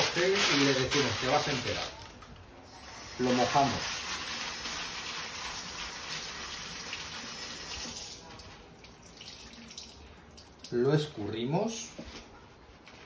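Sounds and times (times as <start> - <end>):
baking paper crumpling: 0.0 - 2.2.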